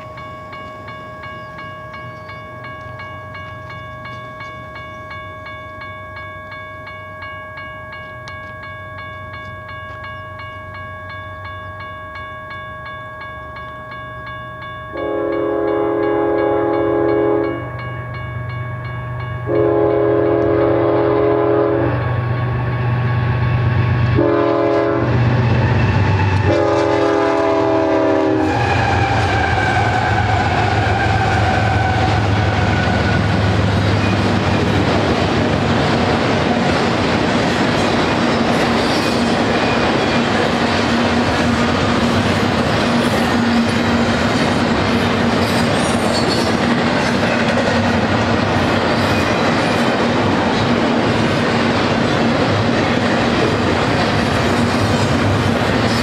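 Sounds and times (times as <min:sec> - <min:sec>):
railroad crossing bell ringing: 0:00.0 - 0:56.0
locomotive horn: 0:14.9 - 0:17.7, 0:19.5 - 0:22.0, 0:24.2 - 0:33.4
train wheel noise: 0:15.0 - 0:56.0.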